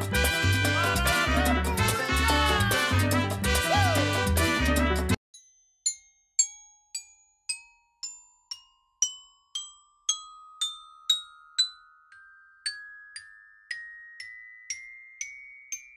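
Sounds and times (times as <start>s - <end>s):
xylophone playing rising scale: 0.0s - 5.6s.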